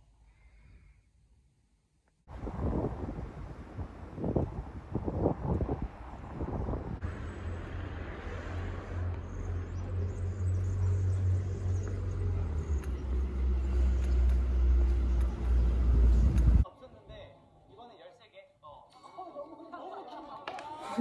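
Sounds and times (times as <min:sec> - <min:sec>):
wind buffeting microphone: 0:02.3 - 0:08.0, 0:09.5 - 0:16.6
engine low hum: 0:02.3 - 0:16.6.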